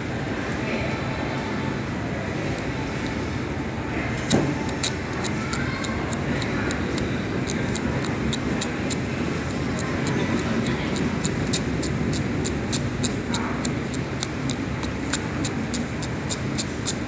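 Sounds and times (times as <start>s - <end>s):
small sharp clicks and ticks: 4.7s - 17.0s.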